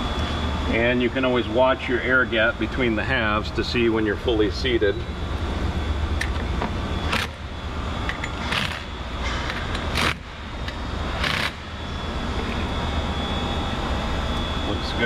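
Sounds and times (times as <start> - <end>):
steady low hum: 0.0 - 15.0
impact driver bursts: 11.2 - 11.6.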